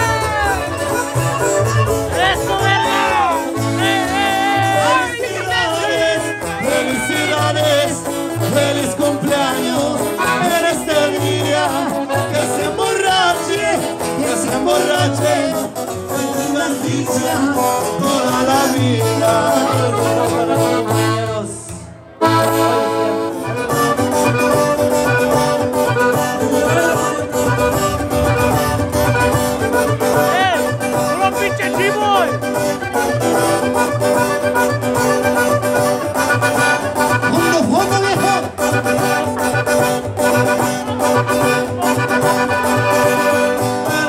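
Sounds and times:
accordion: 0:00.0 - 0:44.0
guitar: 0:00.0 - 0:44.0
person singing: 0:02.4 - 0:21.4, 0:26.3 - 0:29.0.

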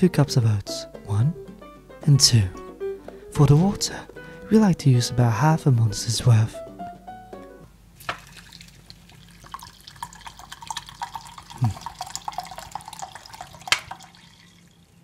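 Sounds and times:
water pouring into saucepan: 0:08.0 - 0:15.0.

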